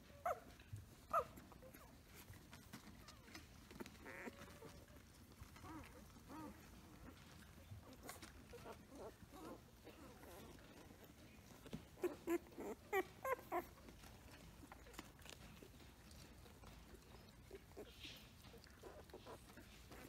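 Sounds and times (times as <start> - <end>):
puppies squeaking and whimpering: 0.0 - 20.0.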